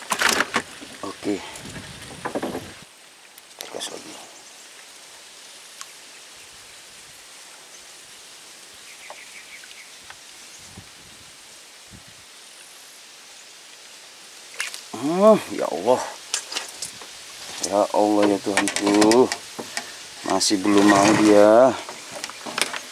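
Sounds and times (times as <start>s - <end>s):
faint steady hiss: 0.0s - 22.9s
man's wordless exclamation: 14.9s - 16.2s, 20.2s - 21.8s.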